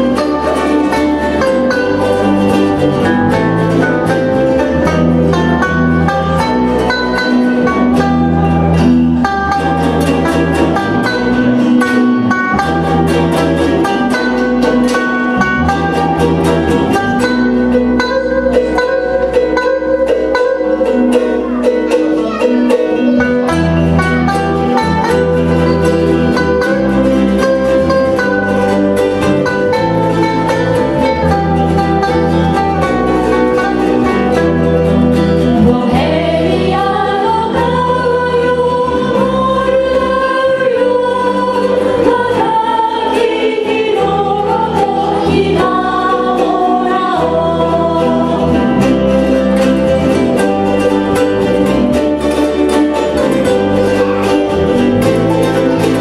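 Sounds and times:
bass line: 0.0s - 56.0s
ukulele ensemble strumming: 0.0s - 56.0s
group of voices singing: 35.1s - 56.0s.

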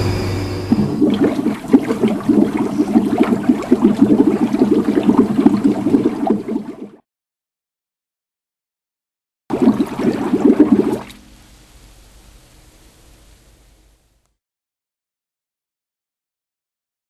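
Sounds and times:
agitator humming: 0.0s - 5.0s
water spraying into tub: 0.7s - 6.7s, 9.5s - 11.2s.

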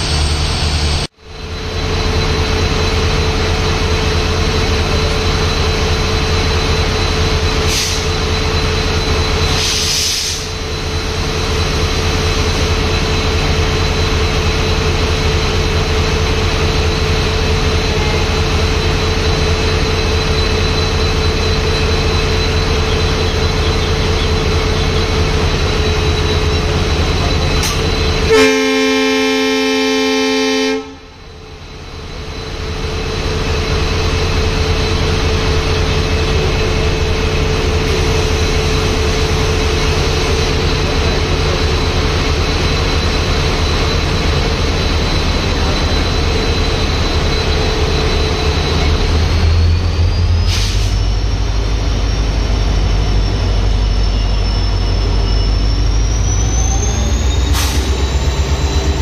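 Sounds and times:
diesel locomotive engine: 0.0s - 59.0s
locomotive horn blast: 28.2s - 31.2s.

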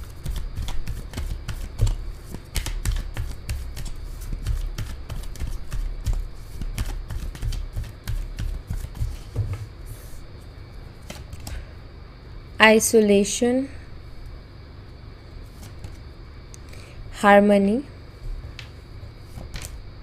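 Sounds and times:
cards being shuffled: 0.2s - 10.1s, 11.0s - 11.6s, 15.5s - 16.0s, 18.5s - 19.8s.

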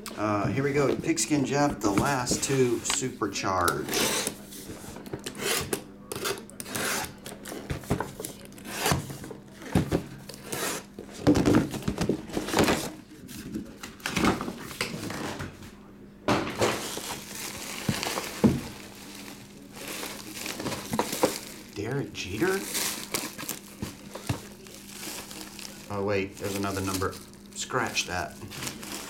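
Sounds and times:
bubble wrap rustling: 16.6s - 29.0s.

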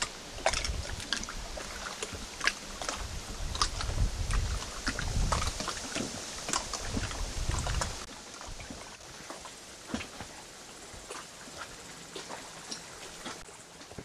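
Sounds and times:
wind gusting on microphone: 0.0s - 8.7s.

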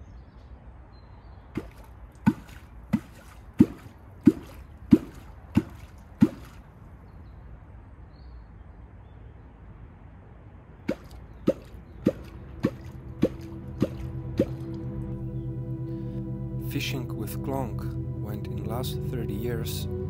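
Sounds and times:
deep plop of stick in water: 1.6s - 6.6s, 10.9s - 14.9s.

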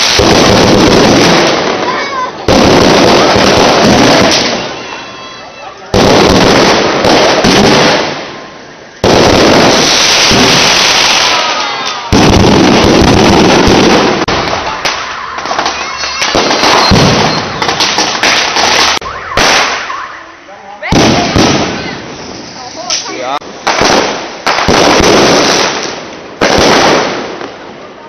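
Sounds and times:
fireworks whistles: 0.0s - 27.4s
fireworks bangs: 0.0s - 28.0s
fireworks crackling and hissing: 0.0s - 28.0s
fireworks pops: 9.0s - 20.0s, 22.8s - 27.6s.

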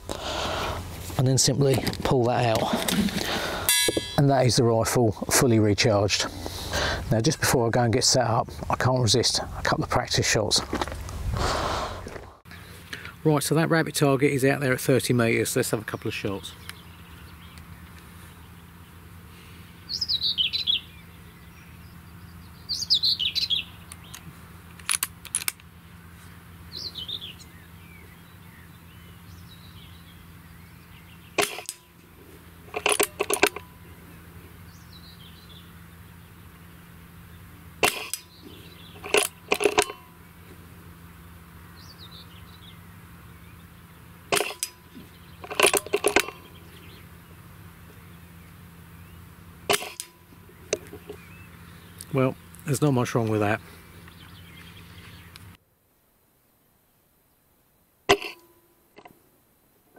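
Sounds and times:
small birds chirping: 14.9s - 24.7s, 25.7s - 32.8s, 33.6s - 55.6s
metallic clicks of rifle action: 23.9s - 25.7s, 32.7s - 33.7s, 39.0s - 40.0s, 44.3s - 44.8s, 45.4s - 46.5s.

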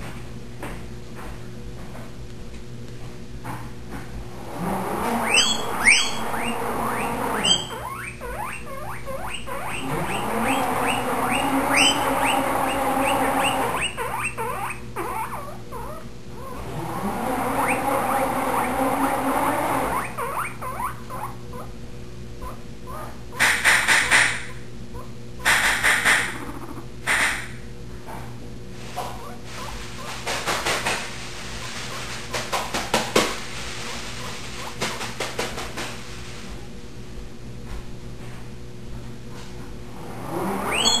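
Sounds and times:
salad spinner whirring: 4.3s - 7.9s, 9.8s - 14.0s, 16.6s - 20.2s
guinea pig squealing: 4.5s - 21.8s, 22.4s - 27.5s, 29.0s - 35.2s, 40.2s - 41.0s.

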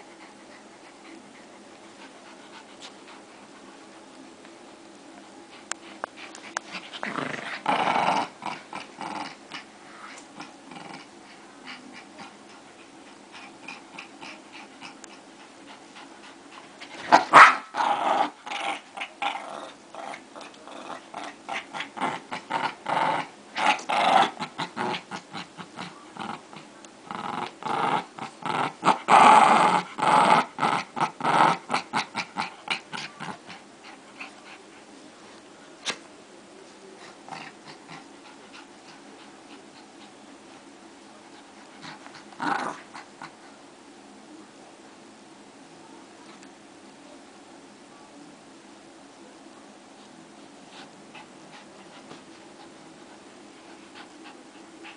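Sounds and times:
small dogs growling: 5.7s - 34.8s, 37.0s - 43.6s.

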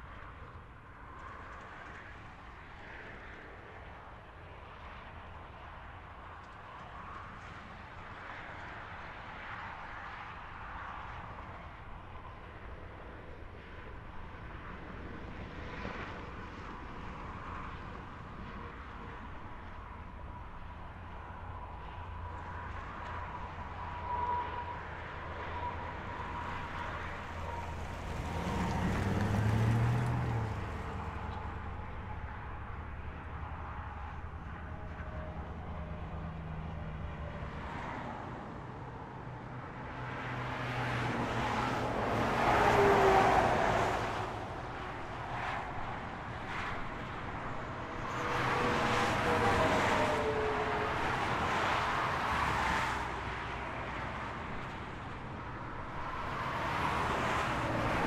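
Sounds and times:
distant highway traffic hum: 0.0s - 58.0s
vehicle passing close: 26.5s - 31.6s.

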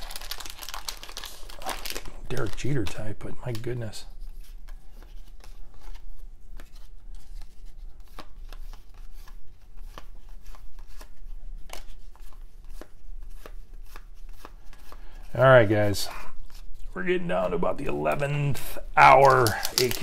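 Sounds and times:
cards flicking against each other: 19.0s - 20.0s.

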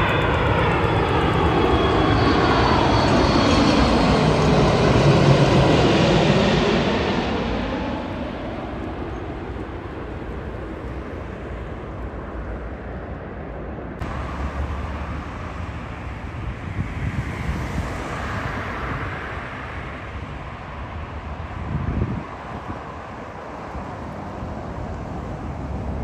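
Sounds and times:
jet airliner rumble: 0.0s - 26.0s
wind buffeting microphone: 15.2s - 19.2s, 20.9s - 26.0s.

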